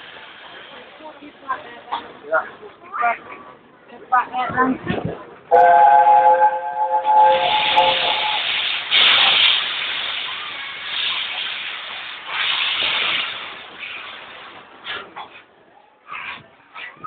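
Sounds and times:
steam locomotive whistle: 5.5 - 9.0
escaping steam hiss: 5.6 - 15.2.

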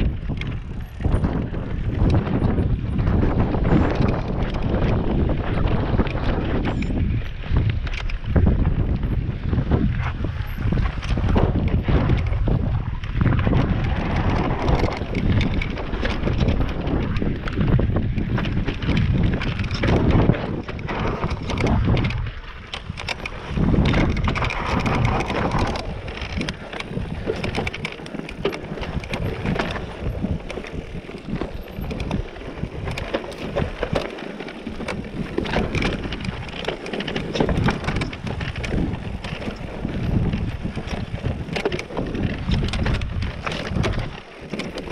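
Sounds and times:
bike rattling over rocks: 0.0 - 44.9
tyres rumbling on loose stones: 0.0 - 44.9
wind buffeting microphone: 0.0 - 44.9.

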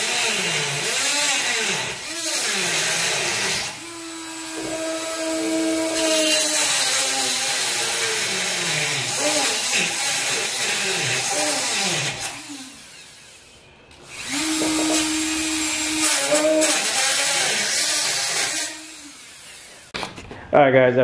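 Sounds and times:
cut-off tool grinding metal: 14.0 - 19.2.

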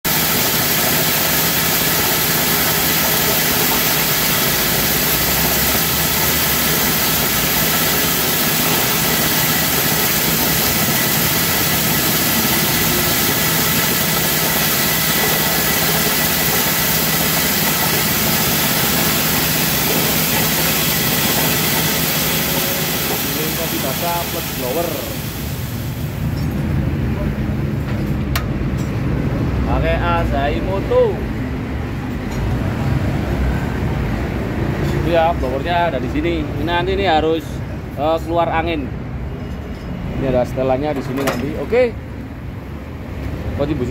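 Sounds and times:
small petrol engine: 0.0 - 26.5
coffee hulling machine running: 0.1 - 26.5.

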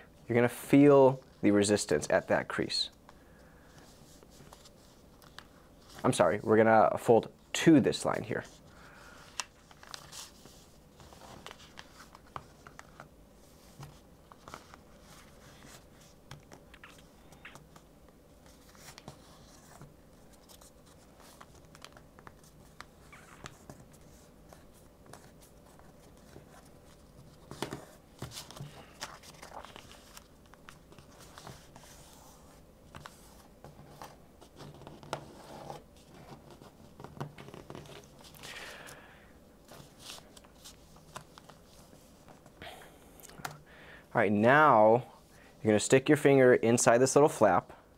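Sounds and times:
paper rustling and crinkling: 8.0 - 39.0, 39.6 - 42.6
paper crackles: 9.3 - 38.9.

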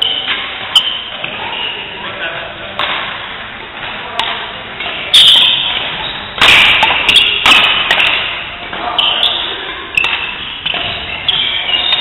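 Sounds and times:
rackets hitting shuttlecock: 2.7 - 12.0.

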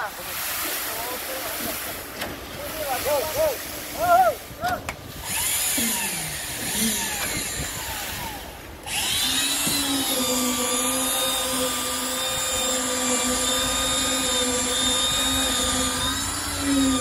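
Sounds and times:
motor spinning up and humming: 5.1 - 17.0.

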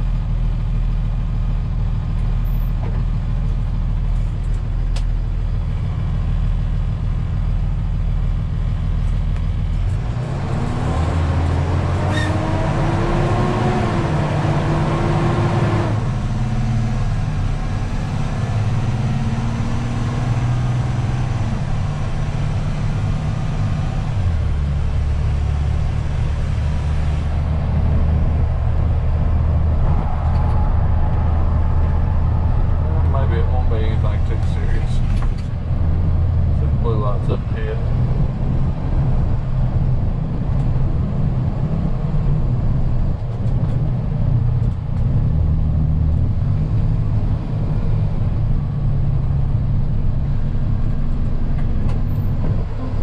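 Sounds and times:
truck engine running: 0.0 - 12.0, 15.9 - 53.0
road noise inside cab: 0.0 - 53.0.

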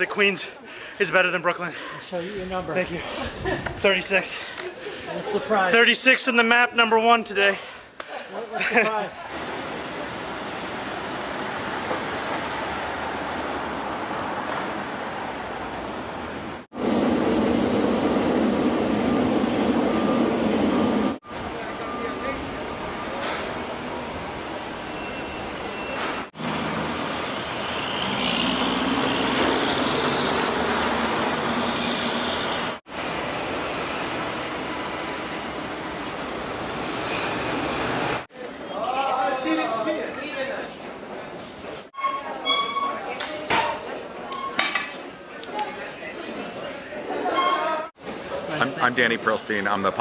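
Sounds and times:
road noise: 8.9 - 38.7
cars passing: 9.3 - 17.7, 25.7 - 38.3
street traffic rushing: 9.3 - 38.3.

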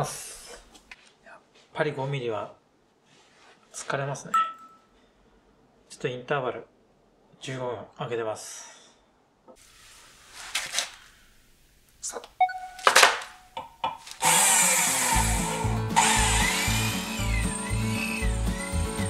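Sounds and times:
brief beep: 4.3 - 4.9, 12.4 - 13.5
handling sounds: 10.2 - 11.2, 12.7 - 14.2
electric drill boring into steel: 14.2 - 19.0
background music with low beat: 15.0 - 19.0.

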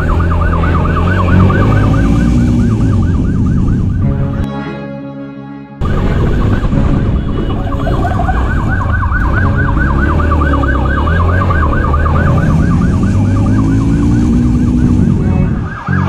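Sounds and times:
police siren yelping: 0.0 - 4.4, 5.8 - 16.0.

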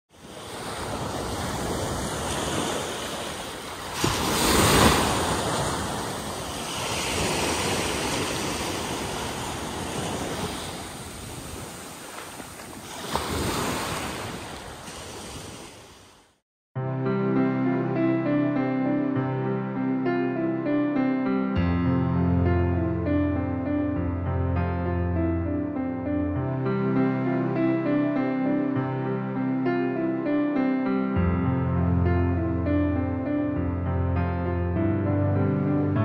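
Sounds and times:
surf breaking on beach: 0.1 - 16.2.

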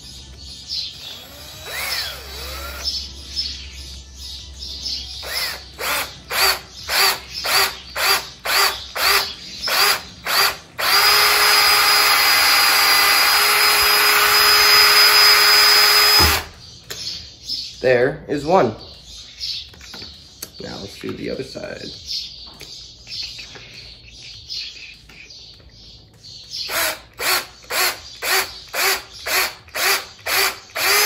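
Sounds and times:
cordless drill boring wood: 1.0 - 2.9, 5.2 - 16.5, 26.7 - 31.0.

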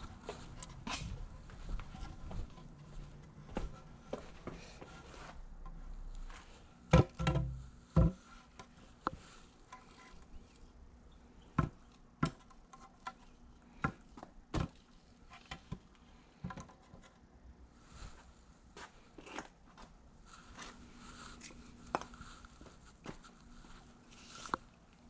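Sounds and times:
objects knocking and tapping: 6.9 - 9.9, 11.5 - 14.9, 15.5 - 17.1.

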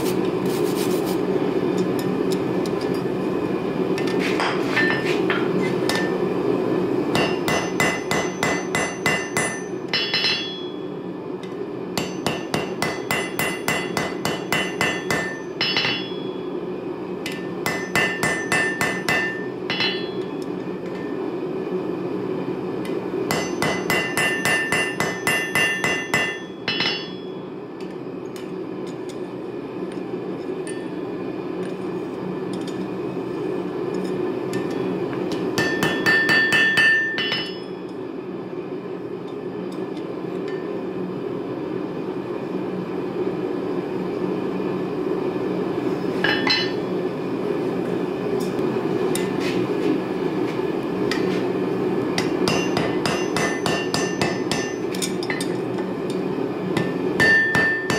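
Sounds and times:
steady low hum: 0.0 - 57.9
hammer ringing on anvil: 7.2 - 10.9, 12.0 - 16.6, 17.3 - 21.1, 23.3 - 27.5, 35.6 - 38.0, 46.2 - 46.8, 52.2 - 55.5, 56.8 - 57.9.

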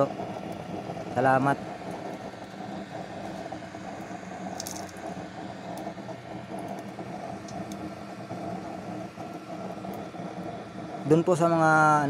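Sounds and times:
light ticks and crackles: 0.0 - 11.6
stove flame rushing: 0.0 - 12.0.

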